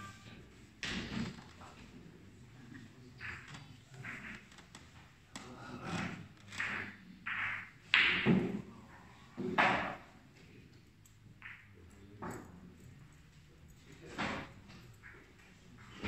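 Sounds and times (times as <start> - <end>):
billiard balls knocking: 3.2 - 5.2, 6.5 - 8.7, 9.4 - 10.1.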